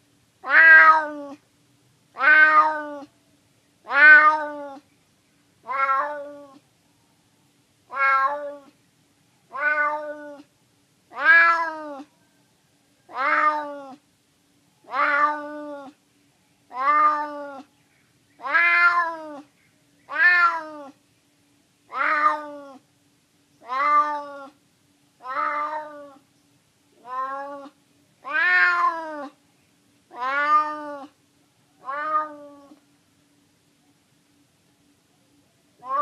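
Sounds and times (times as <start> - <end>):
cat meowing: 0.4 - 1.4, 2.2 - 3.1, 3.9 - 4.8, 5.6 - 6.6, 7.9 - 8.7, 9.5 - 10.5, 11.1 - 12.1, 13.1 - 14.0, 14.9 - 16.0, 16.7 - 17.7, 18.4 - 19.5, 20.1 - 21.0, 21.9 - 22.8, 23.6 - 24.6, 25.2 - 26.2, 27.0 - 29.4, 30.1 - 31.2, 31.8 - 32.8.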